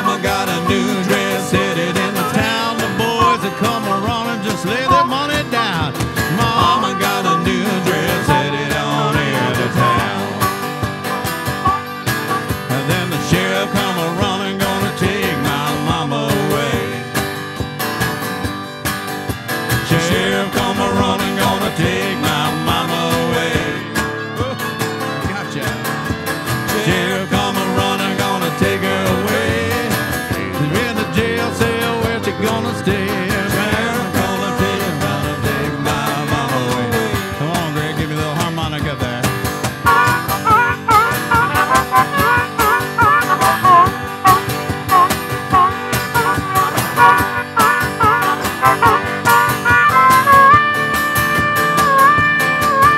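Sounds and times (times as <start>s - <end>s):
harmonica: 0.0s - 14.2s, 39.6s - 52.9s
strummed acoustic guitar: 0.0s - 52.9s.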